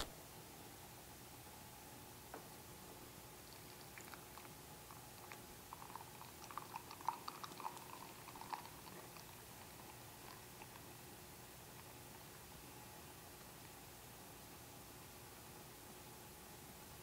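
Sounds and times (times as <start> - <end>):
beer trickling into a glass: 3.4 - 10.7.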